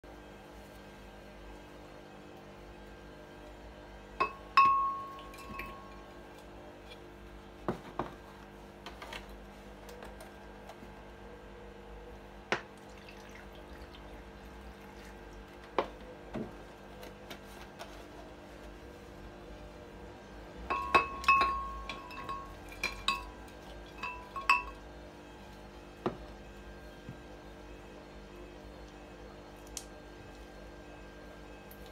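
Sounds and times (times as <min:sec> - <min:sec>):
strawberries clinking on glass: 0:04.2 - 0:06.1, 0:20.7 - 0:24.8.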